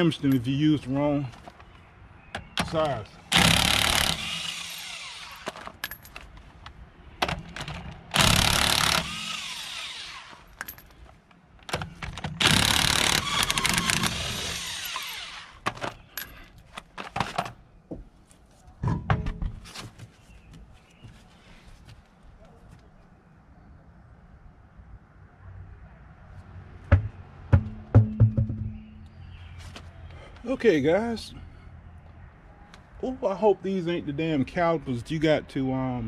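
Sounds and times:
impact wrench hammering: 26.9 - 28.8.

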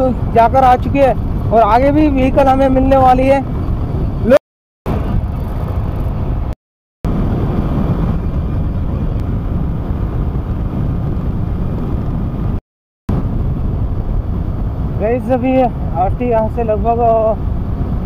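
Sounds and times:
road noise: 0.0 - 18.0
wind rushing over microphone: 0.0 - 18.0
motorcycle engine: 4.9 - 6.6.

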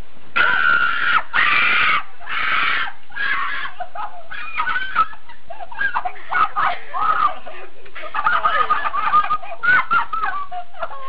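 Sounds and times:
person screaming: 0.4 - 3.9.

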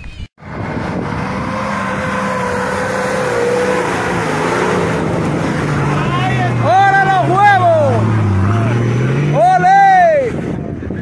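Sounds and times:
off-road vehicle engine revving hard: 0.4 - 10.9.

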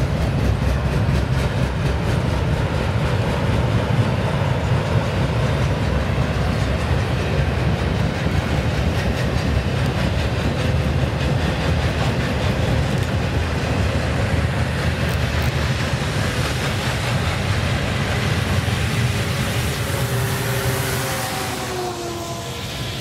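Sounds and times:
steel wheels rumbling on rails: 0.0 - 23.0.

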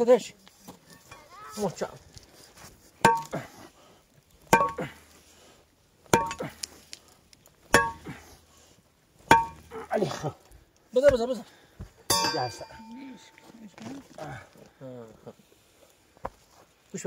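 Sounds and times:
pickaxe striking stony soil: 3.0 - 3.5, 4.4 - 5.0, 6.0 - 6.7, 7.6 - 8.2, 9.2 - 9.8.

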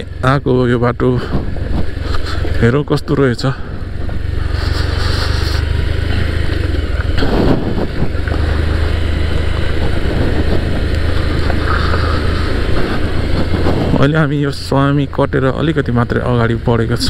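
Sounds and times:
motorcycle engine running: 0.0 - 17.0
wind noise on microphone: 1.2 - 2.6, 7.1 - 14.6.

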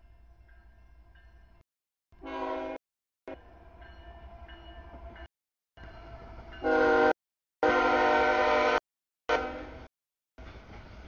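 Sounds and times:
train horn blasts: 2.2 - 3.5, 6.6 - 9.9.

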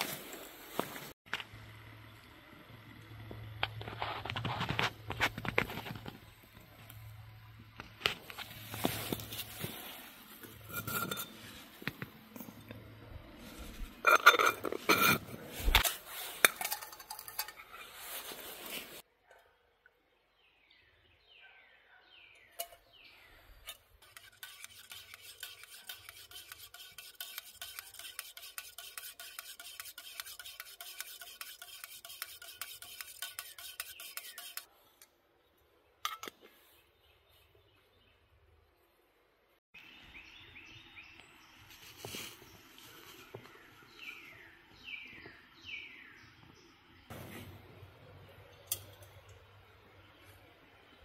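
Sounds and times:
spoon scraping in metal cup: 10.4 - 12.5, 13.7 - 18.4, 23.6 - 34.7
metal cookware clattering: 14.0 - 18.0.

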